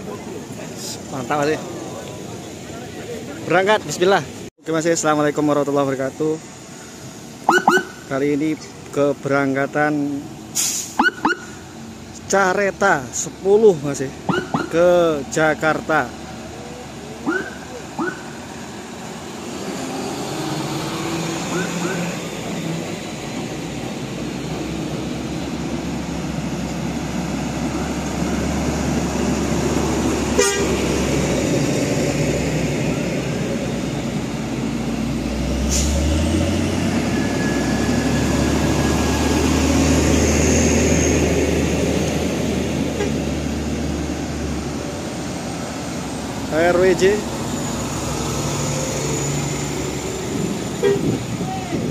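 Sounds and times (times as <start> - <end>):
diesel trucks rumbling past: 0.0 - 51.9
truck horn toot: 30.3 - 30.8, 43.0 - 43.2, 50.8 - 51.2.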